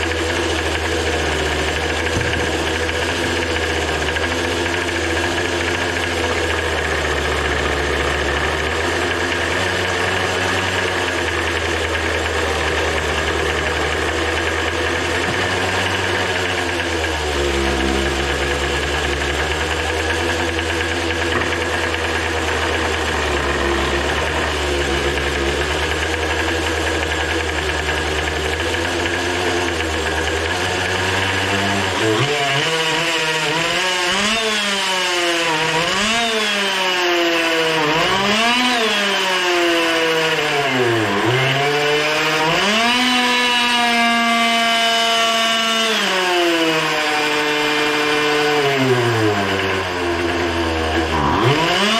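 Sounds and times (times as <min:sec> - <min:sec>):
leaf blower engine revving: 0:00.0 - 0:51.9.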